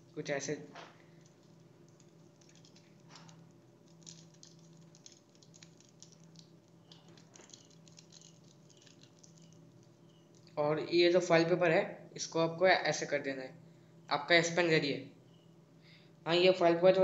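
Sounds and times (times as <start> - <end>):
aluminium foil crinkling: 1.0 - 10.6.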